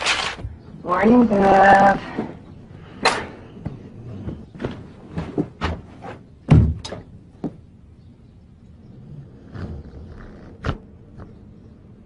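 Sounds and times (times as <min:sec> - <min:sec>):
sharp knocks and thumps: 0:03.0 - 0:07.6.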